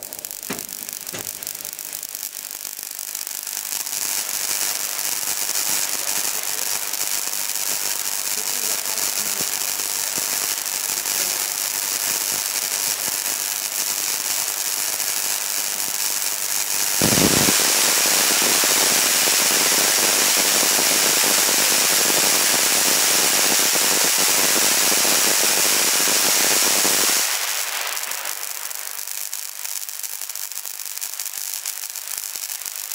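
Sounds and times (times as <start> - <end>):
electric discharge crackling: 0.0 - 9.8, 16.8 - 23.7
low thump: 0.4 - 1.7.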